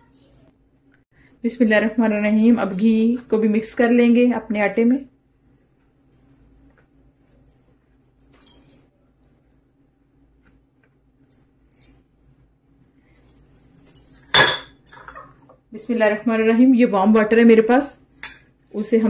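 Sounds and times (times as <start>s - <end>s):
bangles jingling: 0.0s - 0.5s, 1.2s - 3.8s, 5.6s - 9.5s, 13.0s - 15.3s
sharp clink: 14.2s - 15.1s.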